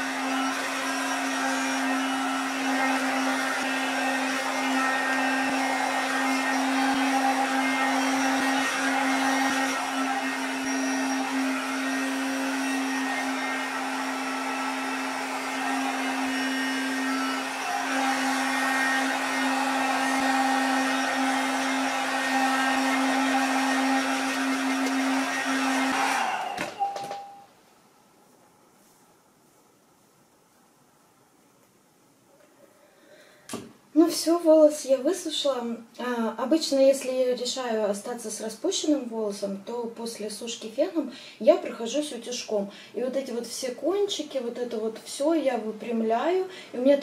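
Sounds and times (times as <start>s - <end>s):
hair dryer humming: 0.0s - 27.4s, 40.1s - 47.0s.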